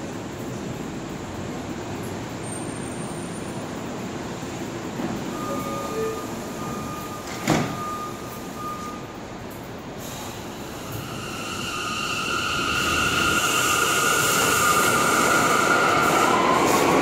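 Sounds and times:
subway train equipment running: 0.0s - 17.0s
sliding doors banging shut: 7.2s - 7.9s.

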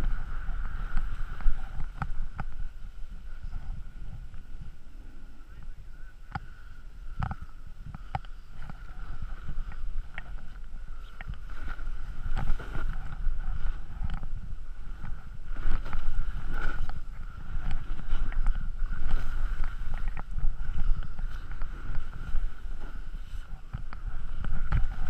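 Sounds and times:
muffled wind rumble: 0.0s - 25.0s
snow scrapes and clicks: 8.5s - 25.0s.

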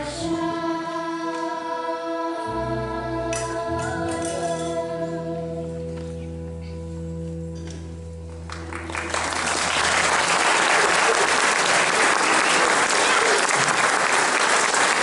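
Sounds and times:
audience applause: 8.5s - 15.0s.

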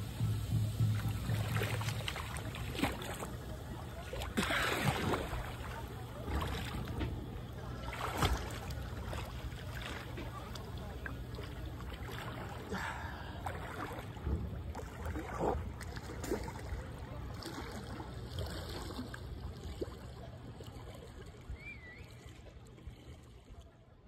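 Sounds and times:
steady low rumble: 0.0s - 18.2s
swimmer splashing in water: 0.0s - 20.0s.

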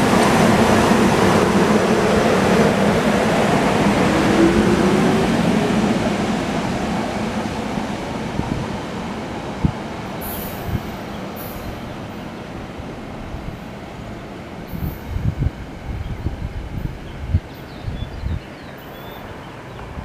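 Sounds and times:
electric train pulling away: 0.0s - 17.7s.

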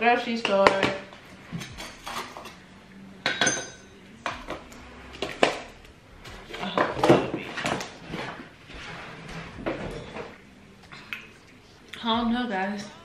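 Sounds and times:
dishes and plastic containers clinking: 0.4s - 2.6s, 3.2s - 10.4s.

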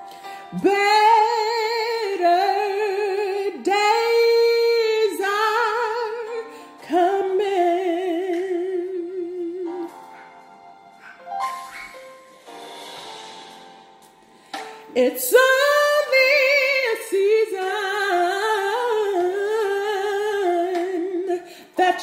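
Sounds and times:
woman singing gospel: 0.5s - 9.9s, 14.9s - 22.0s.

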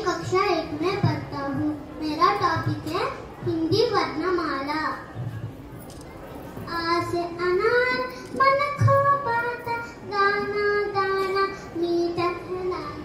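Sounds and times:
young boy singing: 6.7s - 13.0s.

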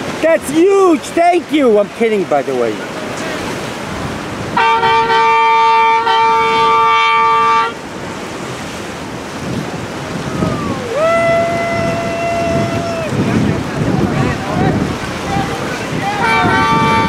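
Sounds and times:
water noise: 0.0s - 17.0s
wind: 0.0s - 17.0s
boat horn blast: 4.5s - 7.9s, 15.9s - 17.0s
higher horn with falling swoop: 4.6s - 7.8s, 16.1s - 17.0s.

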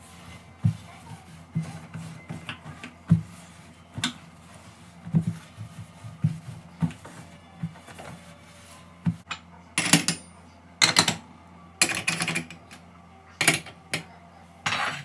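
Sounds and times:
cloth wiping glass hob: 0.0s - 9.2s.

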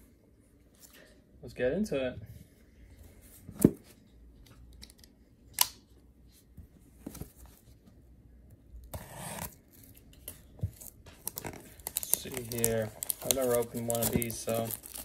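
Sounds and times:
plastic wrap being handled: 10.7s - 15.0s
plastic wrap crinkling tear: 10.8s - 15.0s.

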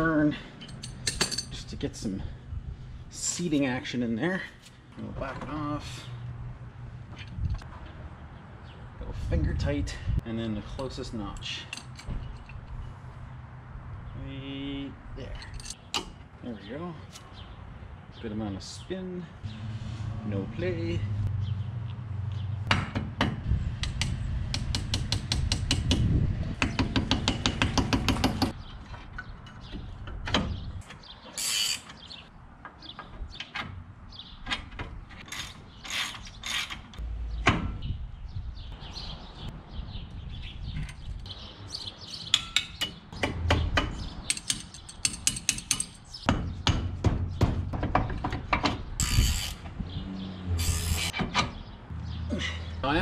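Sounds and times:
metal clinks of tools: 0.6s - 1.6s, 15.4s - 15.8s.

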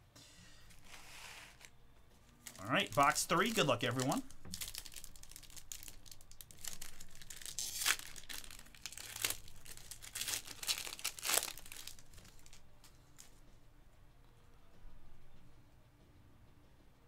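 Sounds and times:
plastic wrapping crinkling: 0.7s - 13.4s.

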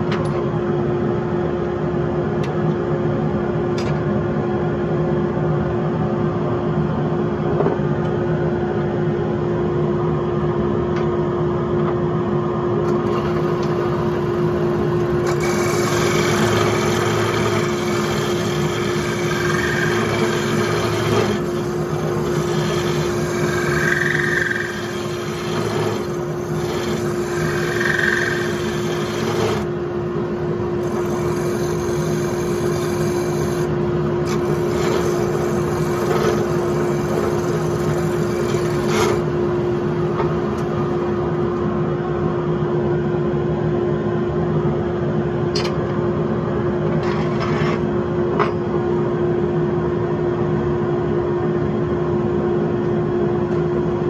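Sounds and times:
lathe motor humming: 13.0s - 29.8s, 30.8s - 39.4s
gouge scraping wood: 15.3s - 29.7s, 30.8s - 33.6s, 34.3s - 39.2s.

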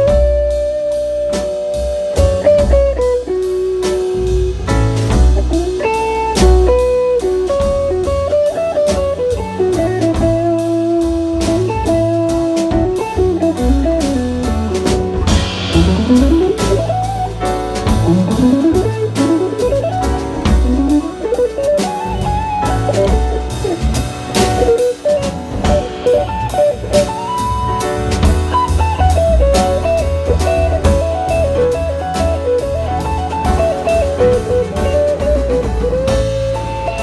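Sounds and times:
upright double bass: 0.0s - 37.0s
electric guitar blues solo: 5.5s - 14.4s, 15.8s - 17.3s, 18.0s - 23.9s, 24.6s - 27.6s.

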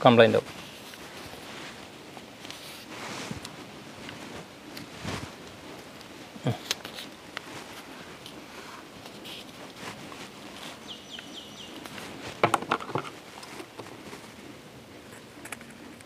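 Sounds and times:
bird chirping: 10.8s - 11.9s.

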